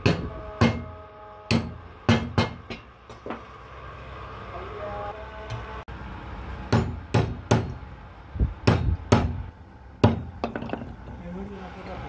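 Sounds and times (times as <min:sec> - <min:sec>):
hammer striking metal: 0:00.0 - 0:03.4, 0:06.7 - 0:07.8, 0:08.6 - 0:09.4, 0:10.0 - 0:10.9.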